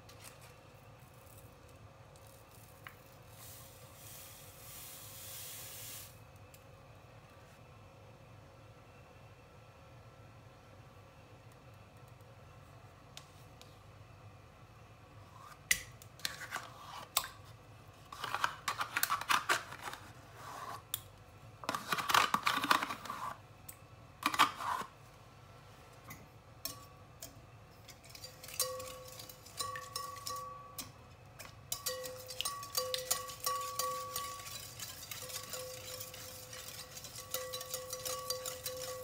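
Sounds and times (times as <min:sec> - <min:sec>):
metal utensil scraping plastic pot: 0:31.8 - 0:39.0.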